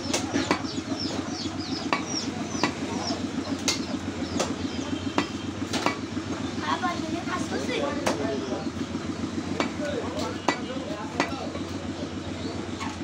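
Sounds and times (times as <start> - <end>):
cleaver chopping meat on wood: 1.8 - 2.8, 3.6 - 6.0, 9.5 - 9.8, 10.4 - 11.4.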